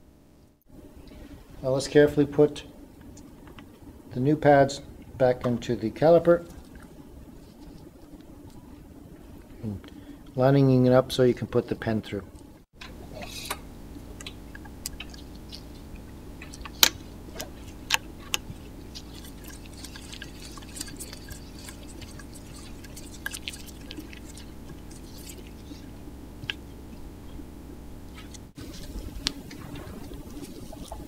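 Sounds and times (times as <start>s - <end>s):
low hum: 12.2s - 31.0s.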